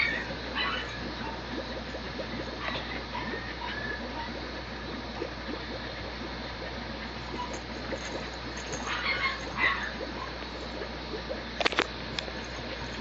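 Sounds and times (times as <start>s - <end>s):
puppy vocal sounds: 0.0s - 1.5s, 2.4s - 4.4s, 7.3s - 10.5s.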